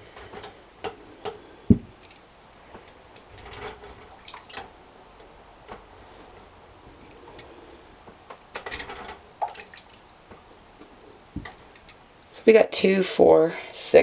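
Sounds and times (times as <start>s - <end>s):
loud low thump: 1.7s - 1.9s
water dripping: 9.4s - 10.0s.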